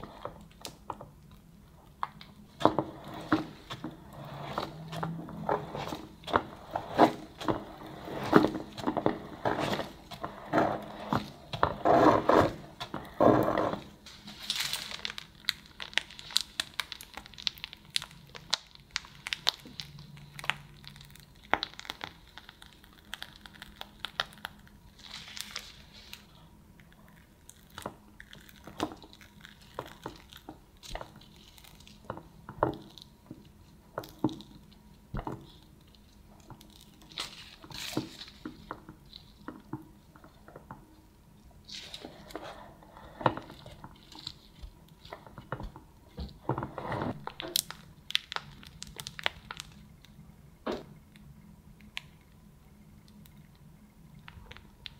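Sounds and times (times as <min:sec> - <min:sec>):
soft squishes of cream: 0:00.0 - 0:54.9
metal scraper scraping cream: 0:02.6 - 0:13.9.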